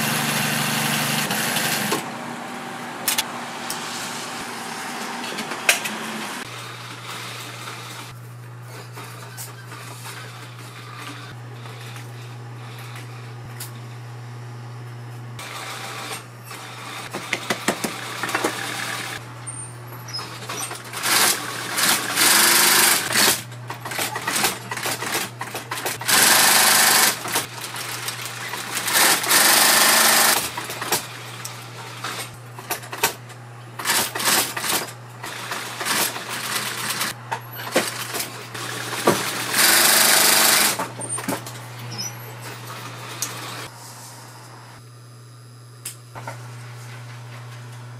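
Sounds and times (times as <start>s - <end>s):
sewing machine motor hum: 20.2s - 32.2s, 37.9s - 40.9s.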